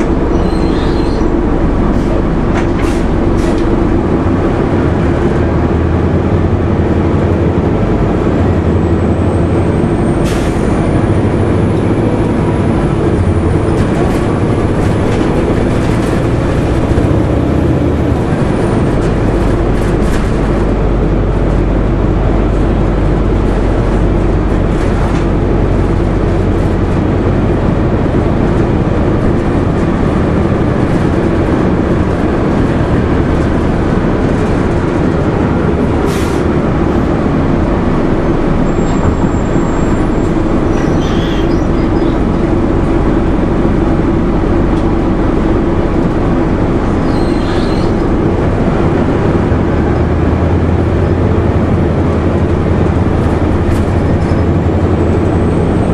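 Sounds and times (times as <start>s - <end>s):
bus diesel engine drone: 0.0s - 55.9s.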